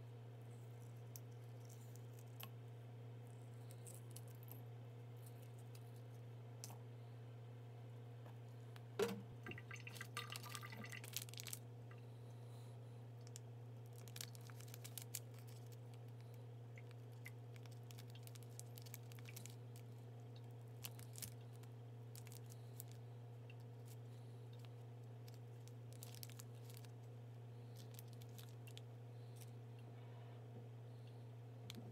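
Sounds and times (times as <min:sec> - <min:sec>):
steady low hum: 0:00.0 - 0:31.9
faint clicks and crinkles: 0:00.6 - 0:02.6, 0:03.5 - 0:06.8, 0:13.2 - 0:29.9
egg shell crackling: 0:13.3 - 0:24.0.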